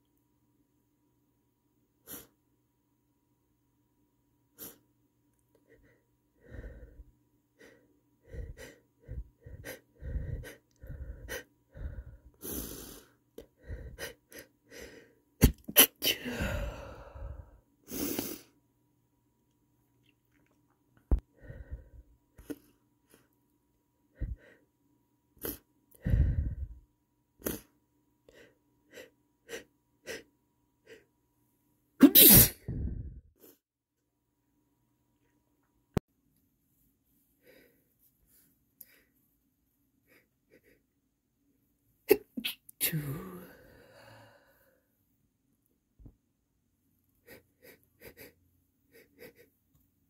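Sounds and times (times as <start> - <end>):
person gasping breaths: 5.6 - 18.5, 21.1 - 23.2, 24.1 - 24.7, 25.4 - 26.8, 42.9 - 44.9
stifled sneeze: 15.4 - 16.3, 32.0 - 32.8, 42.1 - 43.2
man stifling sneezes: 32.0 - 32.7
loud sneeze: 32.0 - 32.8.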